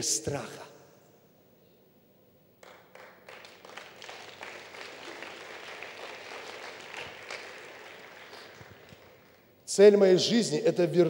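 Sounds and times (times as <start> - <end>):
congregation applauding: 2.6 - 9.6.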